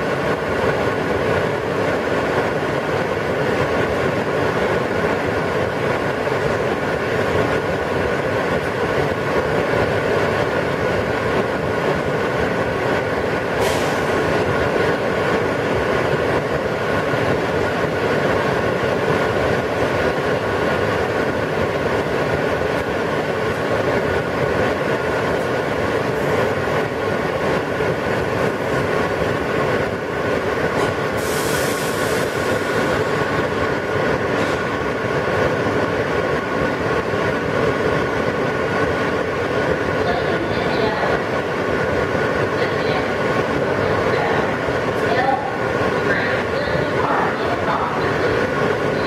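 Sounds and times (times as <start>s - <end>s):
subway wheels rumbling on rail: 0.0s - 49.0s
brief high burst of noise: 13.6s - 14.3s, 30.8s - 33.1s
steady humming tones: 32.0s - 49.0s.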